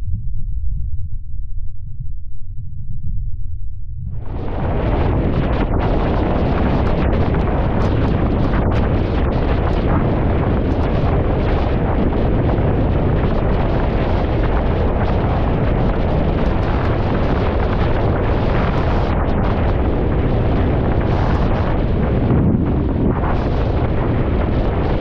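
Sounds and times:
wind buffeting microphone: 4.0 - 25.0
board planing over choppy water: 4.4 - 25.0.

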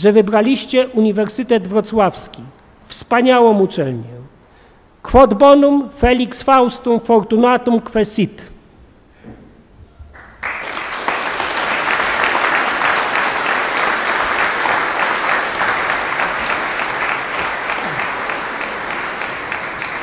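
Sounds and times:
large audience applauding: 10.2 - 20.0.

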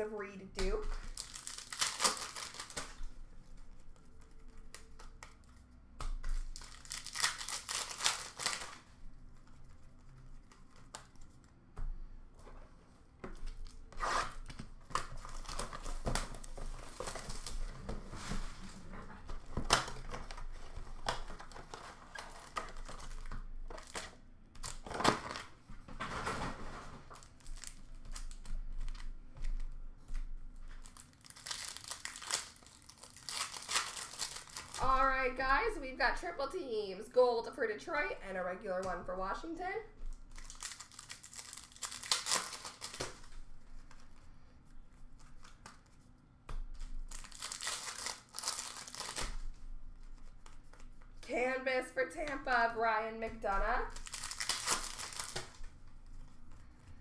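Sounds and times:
wrappers tearing and crinkling: 1.0 - 5.6, 6.2 - 11.4, 13.5 - 29.8, 30.6 - 35.3, 40.1 - 44.2, 46.8 - 49.6, 53.7 - 56.2.

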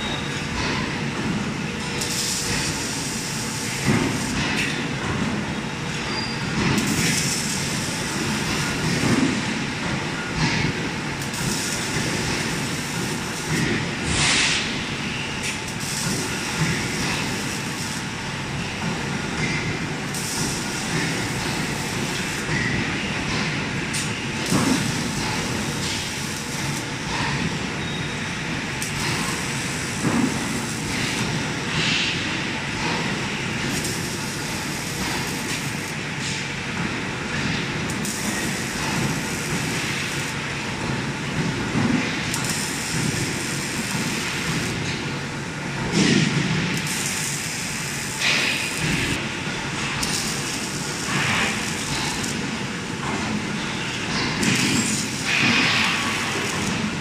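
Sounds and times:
hiss switching on and off: 46.7 - 49.2.

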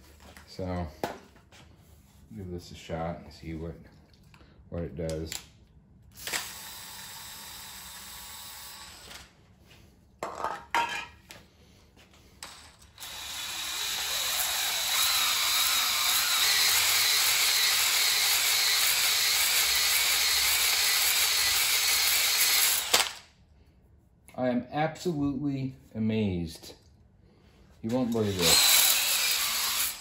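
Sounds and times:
drill spinning hone in cylinder: 6.2 - 9.2, 13.0 - 23.0, 28.2 - 30.0.

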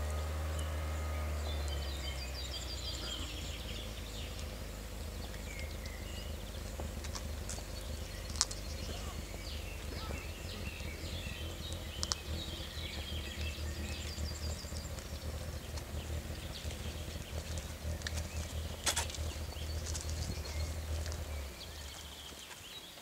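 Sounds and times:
steady low rumble: 0.0 - 22.9
songbirds chirping and trilling: 0.0 - 23.0.

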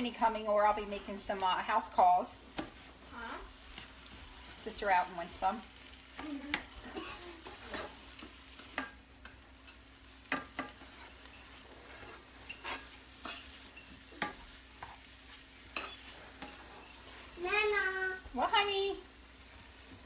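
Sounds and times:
faint sizzle: 0.0 - 20.0
utensil scraping and tapping pan: 2.5 - 2.9, 6.5 - 17.1.

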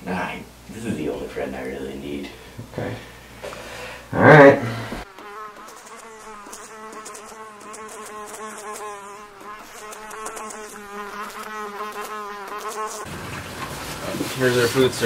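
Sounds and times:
housefly buzzing: 4.1 - 13.1.

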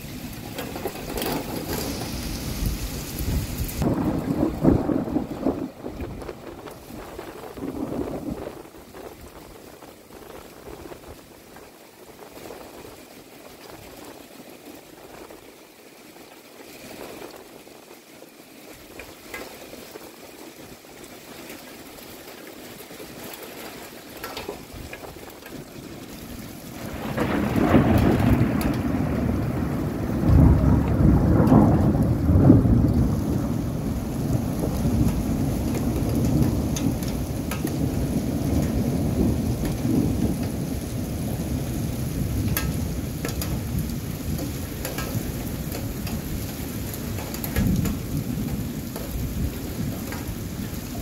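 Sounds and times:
low rumble of thunder: 0.0 - 13.0, 24.3 - 51.0
steady rain falling: 0.0 - 51.0.

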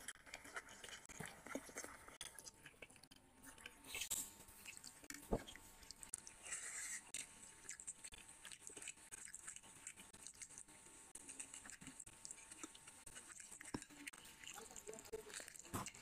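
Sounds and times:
wet eating squelches: 0.0 - 16.0.

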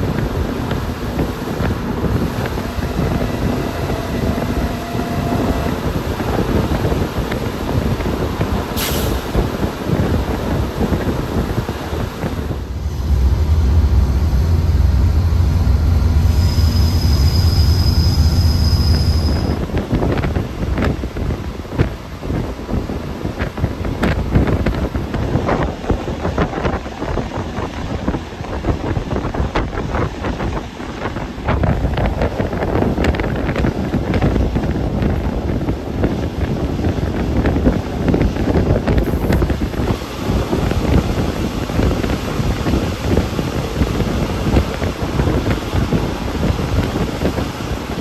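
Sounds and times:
wheels clicking on track: 0.0 - 12.6
train ride rumble: 0.0 - 48.0
wind buffeting microphone: 0.0 - 48.0.

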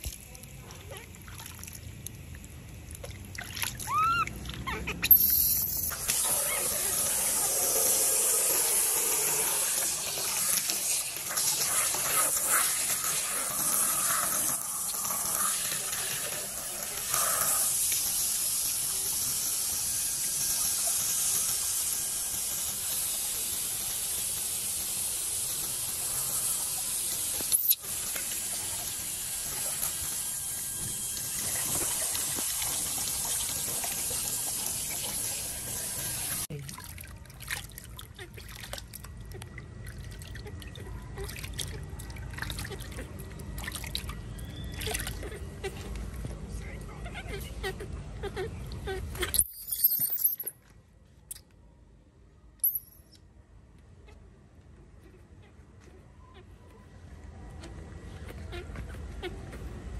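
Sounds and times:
splashing water: 0.0 - 5.0, 31.3 - 45.5
water spraying from hose: 2.9 - 36.5
short high squeaks: 3.9 - 7.0.

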